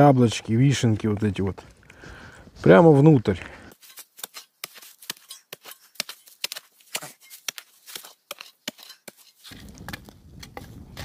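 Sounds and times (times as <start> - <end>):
spade digging into soil: 3.7 - 11.0.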